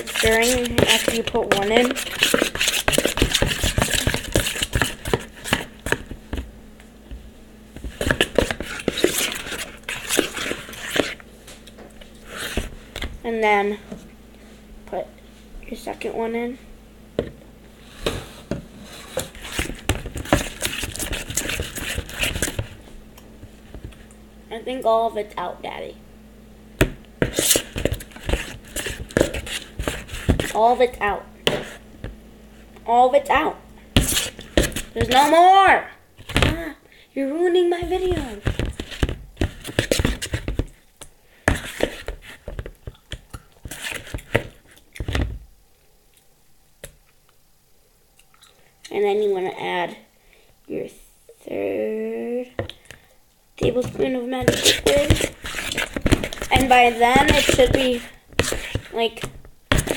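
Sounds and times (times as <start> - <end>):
metal spoon scraping plastic bowl: 0.0 - 6.0, 8.0 - 11.2, 53.6 - 59.9.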